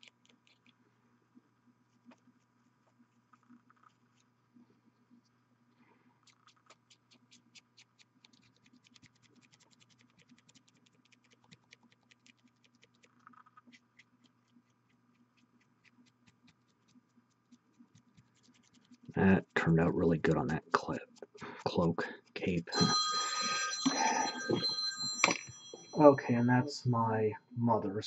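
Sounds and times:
paintbrush bristles scratching: 6.2 - 23.6
faint low hum: 14.6 - 28.0.

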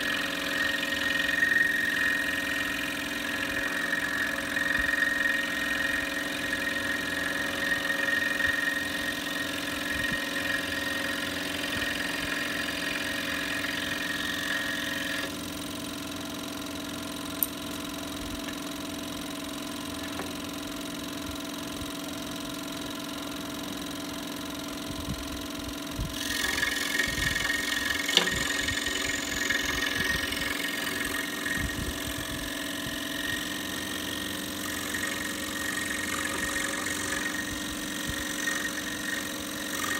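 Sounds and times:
saw blade cutting wood: 0.0 - 15.7, 26.1 - 39.9
scroll saw running: 0.0 - 39.9.

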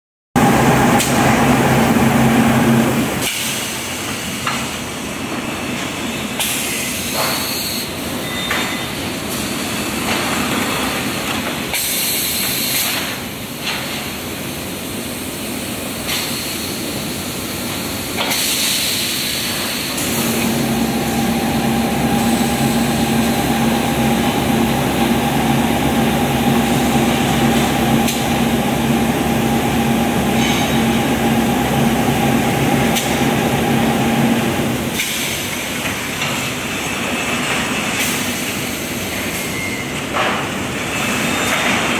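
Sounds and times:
machinery humming drone: 0.4 - 3.7, 19.4 - 38.0
steam hissing: 15.1 - 35.8.

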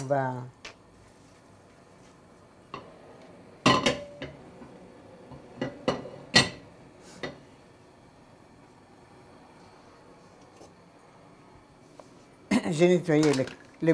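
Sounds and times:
pan and utensils clanking: 3.6 - 4.5, 5.3 - 7.4.

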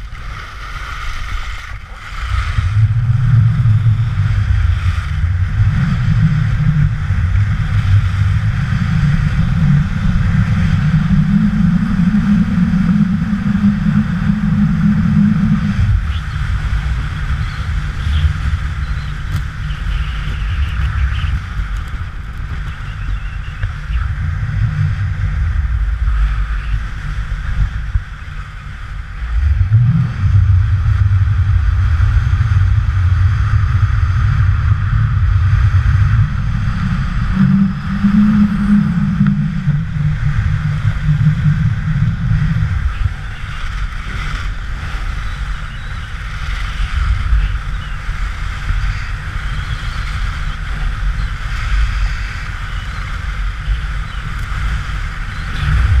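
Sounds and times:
skis sliding on snow: 0.0 - 5.4
wind buffeting microphone: 0.0 - 56.0.

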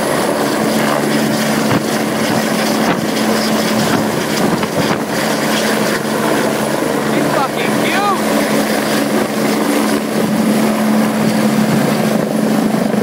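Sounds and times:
helicopter rotor and turbine: 0.0 - 13.0
high-pitched turbine whine: 0.0 - 13.0.

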